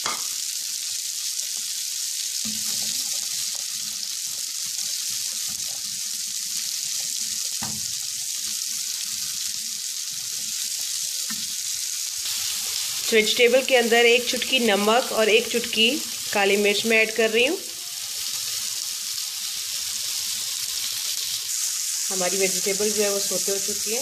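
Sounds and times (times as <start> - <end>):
vegetables sizzling in a frying pan: 0.0 - 24.0
spatula scraping a pan: 2.4 - 9.5.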